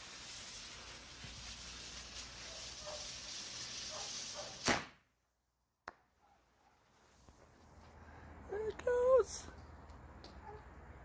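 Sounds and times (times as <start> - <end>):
firework fuse hissing and sparking: 0.0 - 5.0
firework bang: 4.6 - 5.0.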